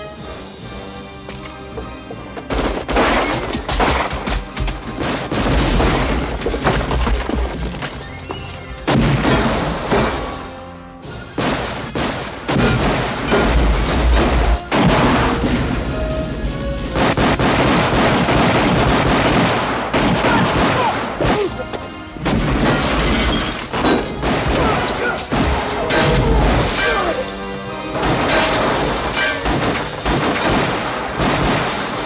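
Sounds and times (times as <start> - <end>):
dramatic film score: 0.0 - 32.0
gunfire bangs: 2.5 - 6.8, 11.4 - 15.7, 17.0 - 21.6, 23.8 - 27.0, 27.9 - 32.0.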